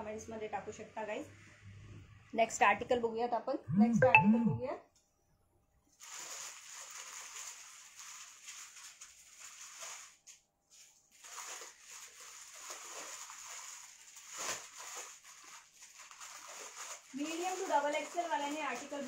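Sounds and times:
plastic packaging crinkling: 6.0s - 19.0s.

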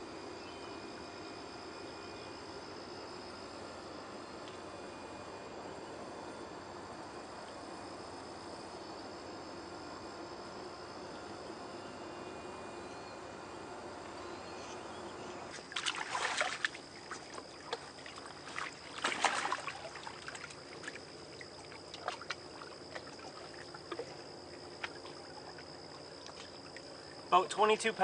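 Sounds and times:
faint high whine: 0.0s - 28.0s
water splashing: 15.6s - 26.8s.

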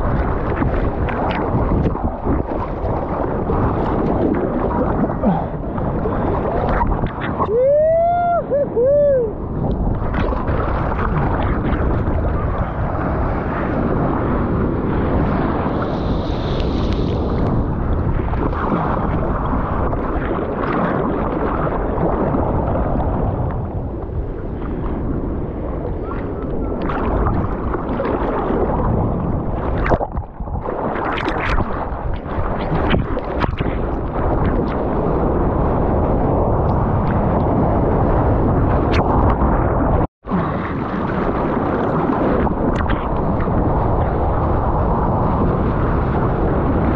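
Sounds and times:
ocean surf splashing: 0.0s - 46.9s.

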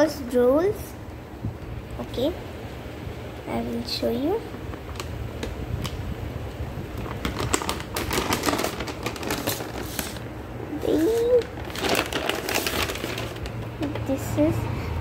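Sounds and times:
plastic bag crinkling: 6.9s - 14.2s.

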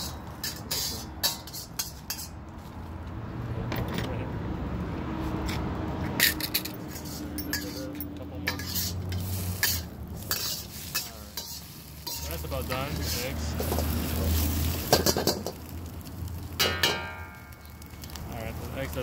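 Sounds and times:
metal kitchenware clinking: 0.0s - 2.4s, 6.2s - 15.6s, 16.6s - 17.8s.

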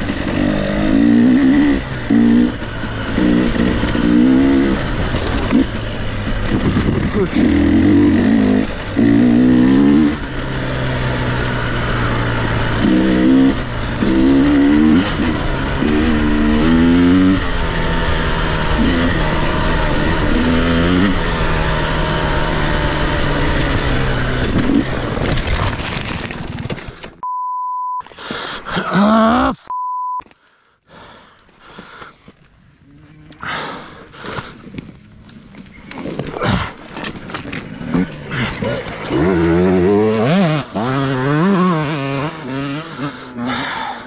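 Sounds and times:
dirt bike engine revving: 0.0s - 25.4s, 32.8s - 44.0s
censor bleeps: 27.2s - 28.0s, 29.6s - 30.2s
rising groan: 32.8s - 34.1s.

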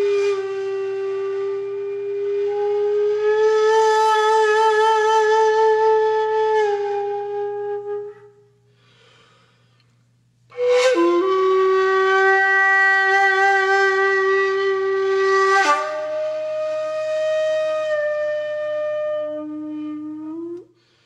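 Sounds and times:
flute-like wind instrument: 0.0s - 8.6s, 10.5s - 20.7s.

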